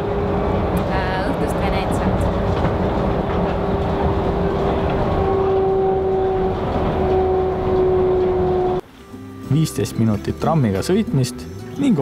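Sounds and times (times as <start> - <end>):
tram rolling rumble: 0.0 - 8.9.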